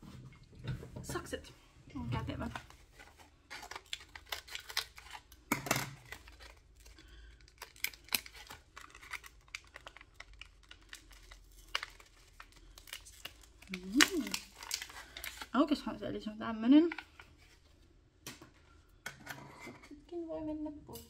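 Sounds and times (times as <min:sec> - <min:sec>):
packaging crinkling and tearing: 0:02.5 - 0:15.8.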